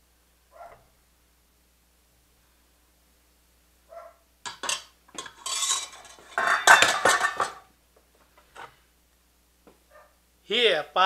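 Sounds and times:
metal kitchenware clattering: 0:04.5 - 0:07.7.

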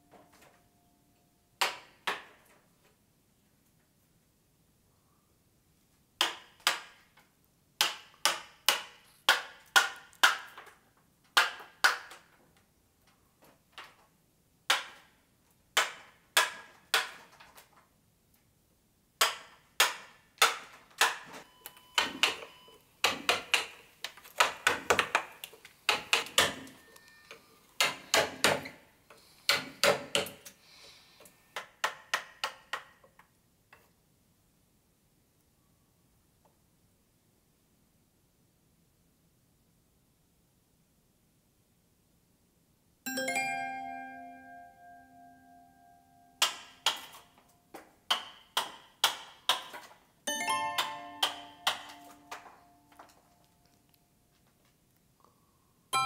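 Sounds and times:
mallet striking chisel into wood: 0:07.8 - 0:10.6, 0:19.2 - 0:21.2, 0:23.0 - 0:23.8, 0:25.9 - 0:26.8, 0:27.8 - 0:28.7, 0:29.5 - 0:30.4, 0:46.4 - 0:47.0, 0:48.1 - 0:49.8, 0:50.8 - 0:52.5.

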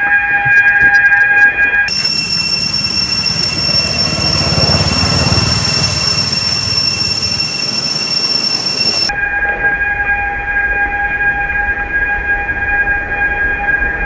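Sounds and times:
cicada chorus droning: 0:01.9 - 0:09.1.

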